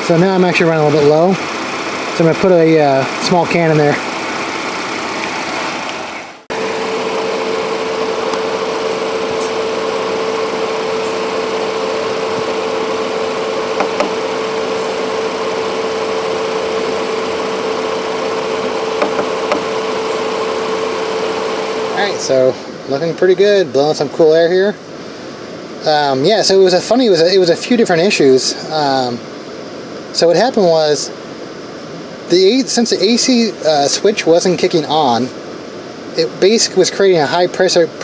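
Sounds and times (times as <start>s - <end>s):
car engine idling: 0.0s - 22.5s
steady hum: 0.0s - 37.6s
condenser fan running: 0.0s - 38.0s.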